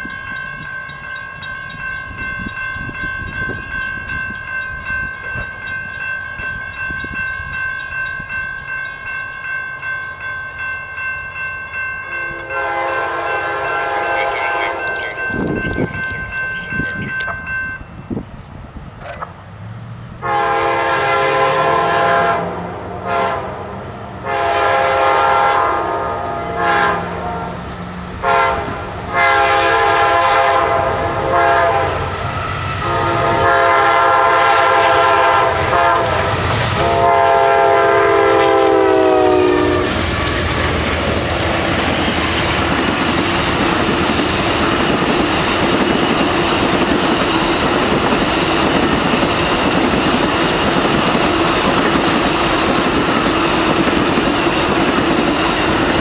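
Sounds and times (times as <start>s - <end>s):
train wheels rolling on rails: 0.0s - 20.4s, 31.0s - 56.0s
train horn blasts: 12.1s - 15.2s, 20.2s - 32.2s, 32.8s - 40.6s.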